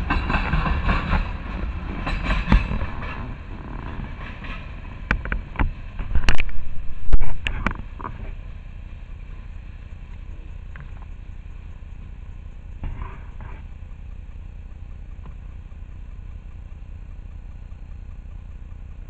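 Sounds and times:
train wheels clattering on track: 0.0 - 6.8
sharp knocks of train: 0.0 - 8.0
train low rumble: 0.0 - 19.0.

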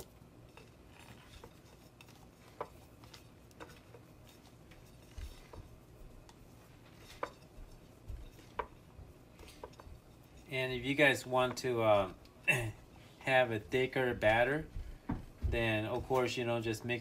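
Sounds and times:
soft taps and rustles of fish: 14.1 - 16.4.

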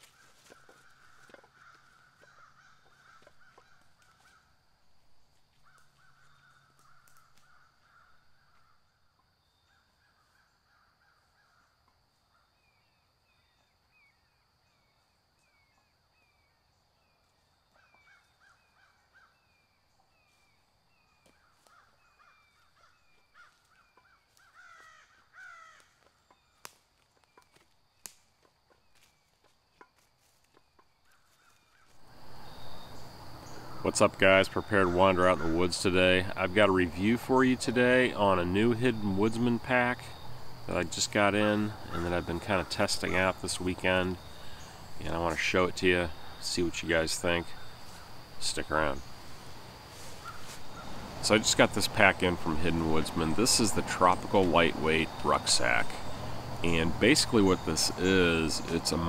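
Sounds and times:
crows cawing: 0.0 - 4.6, 5.5 - 12.6, 17.8 - 19.6, 21.2 - 26.6, 29.9 - 33.9, 34.7 - 36.2, 41.4 - 43.3, 50.1 - 51.0
faint high insect hum: 0.0 - 59.0.

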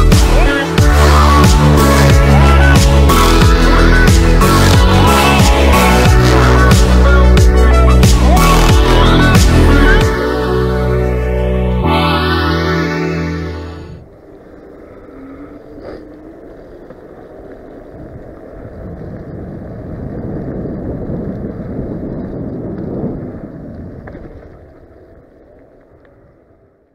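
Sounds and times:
tyre rumble on rough asphalt: 15.8 - 26.6
wind rushing over microphone: 17.8 - 25.0.

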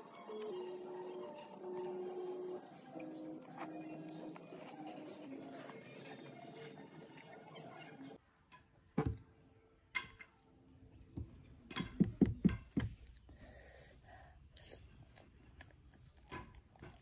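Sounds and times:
eating sounds: 0.1 - 8.2, 14.5 - 17.0.

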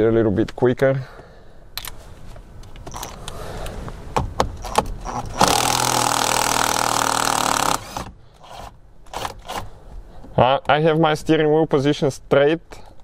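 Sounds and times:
impact wrench hammering: 4.2 - 9.6.

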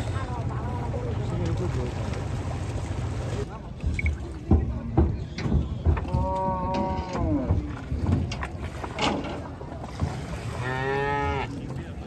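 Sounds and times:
hooves on wooden deck: 4.4 - 8.5
cow mooing: 10.6 - 11.5.

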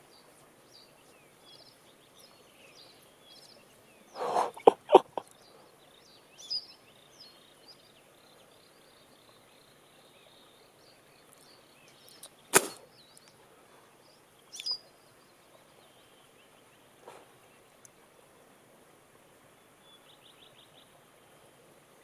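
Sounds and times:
birds chirping: 0.0 - 18.4
fly line swishing: 12.5 - 12.8.

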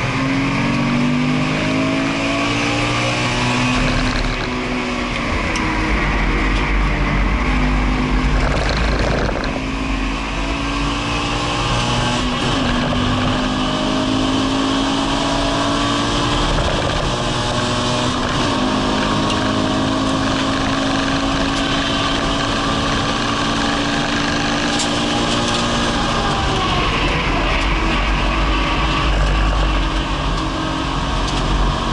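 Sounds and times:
car engine accelerating: 0.0 - 31.9
road and wind noise: 0.0 - 31.9.

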